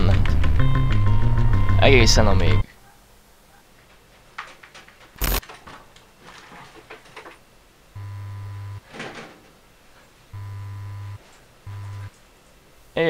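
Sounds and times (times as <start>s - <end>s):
electrical mains hum buzz: 3.9s - 13.0s
keyboard clicks: 5.2s - 5.4s
sharp crack: 5.2s - 5.5s.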